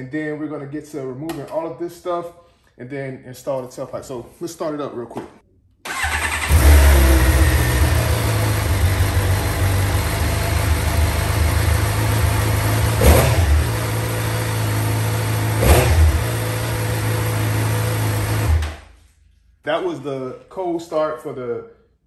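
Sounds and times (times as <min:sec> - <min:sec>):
motorcycle engine idling: 0:06.0 - 0:18.3.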